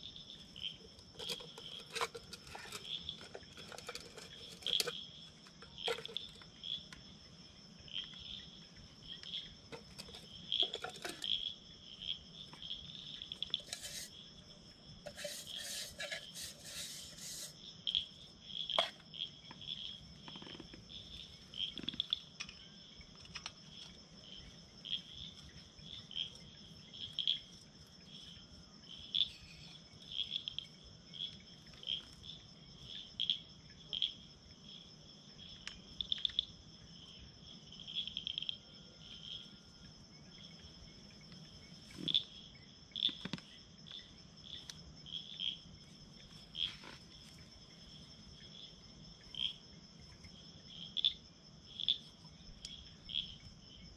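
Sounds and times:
insects chirping: 0:00.0 - 0:53.9
rustling and scraping: 0:00.9 - 0:06.5, 0:09.7 - 0:11.4, 0:13.4 - 0:14.2, 0:15.0 - 0:17.6, 0:46.2 - 0:47.6.

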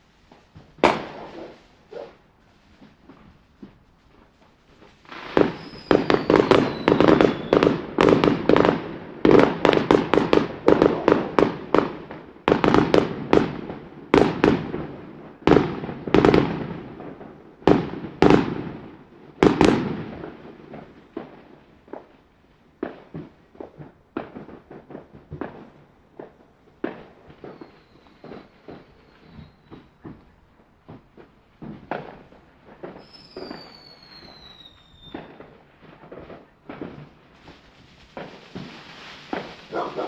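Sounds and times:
fireworks exploding: 0:00.0 - 0:40.0
falling whistle: 0:05.5 - 0:07.6, 0:27.5 - 0:29.8, 0:33.0 - 0:35.3.

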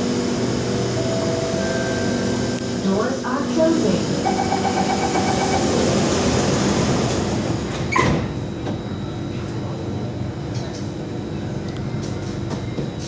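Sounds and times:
door-closing warning beeps: 0:04.2 - 0:05.9, 0:07.1 - 0:13.0.

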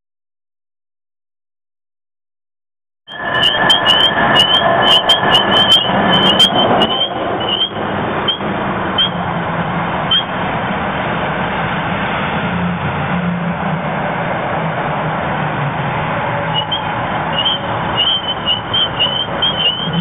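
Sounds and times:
car engine running low: 0:03.1 - 0:20.0
short high chirps and clicks: 0:17.4 - 0:20.0.

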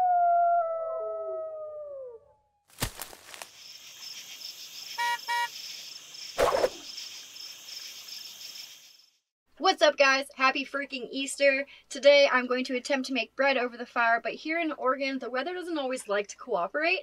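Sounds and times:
insect-like chirping: 0:02.8 - 0:09.3
horn-like beeps: 0:05.0 - 0:05.5.

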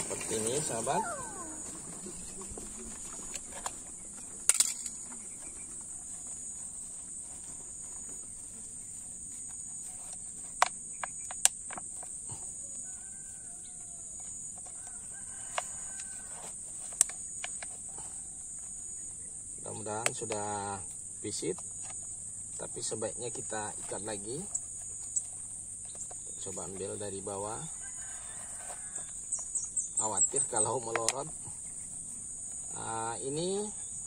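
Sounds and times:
rooster crowing faintly: 0:12.3 - 0:16.7, 0:27.2 - 0:29.3.

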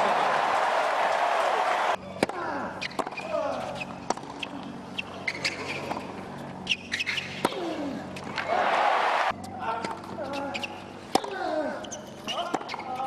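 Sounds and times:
racquets hitting tennis ball: 0:02.2 - 0:06.1, 0:06.7 - 0:10.0
shoes squeaking on court: 0:02.8 - 0:08.5, 0:09.3 - 0:11.1, 0:11.8 - 0:13.0.

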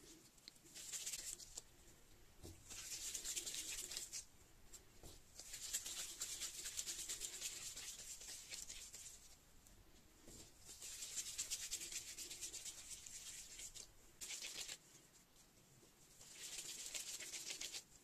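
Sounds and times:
gloves rubbing and rustling: 0:00.0 - 0:18.0.

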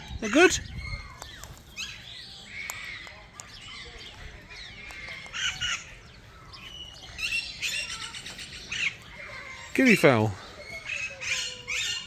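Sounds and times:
birds chirping and whistling: 0:00.0 - 0:12.0
harsh bird squawks: 0:04.6 - 0:12.0.

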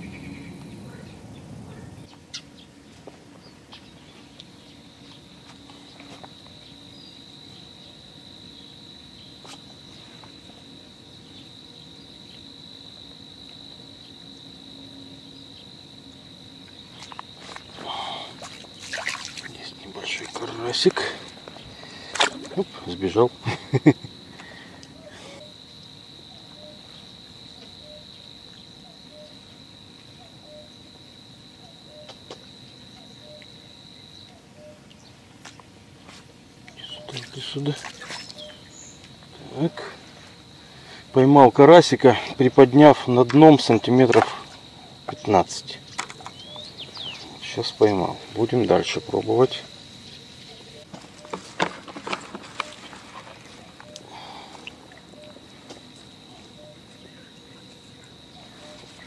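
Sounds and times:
faint cuckoo call: 0:30.2 - 0:30.7, 0:34.3 - 0:34.9, 0:53.6 - 0:54.4, 0:55.1 - 0:55.4, 0:56.3 - 0:57.3, 0:58.3 - 0:59.0.

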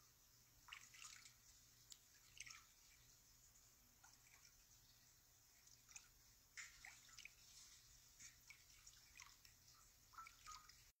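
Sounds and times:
water drips plinking in basin: 0:00.7 - 0:03.0, 0:05.6 - 0:07.4, 0:08.2 - 0:10.9.

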